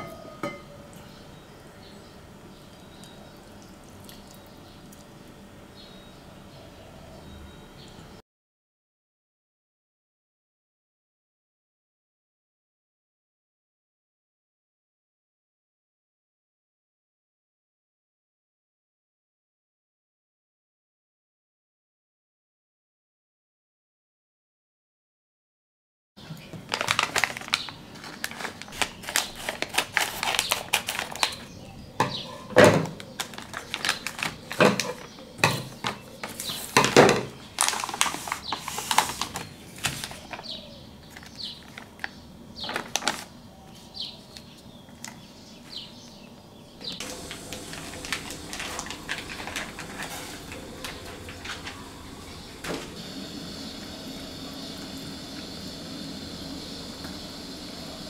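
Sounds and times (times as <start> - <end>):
plastic packaging crinkling: 26.6 - 31.6, 33.0 - 35.2, 35.8 - 43.4, 47.0 - 52.4
plastic bag tearing: 26.7 - 31.5, 33.0 - 35.1, 37.5 - 40.5, 41.1 - 43.4, 47.0 - 51.7
gas stove hissing: 46.9 - 58.0
noodles cooking in water: 47.0 - 58.0.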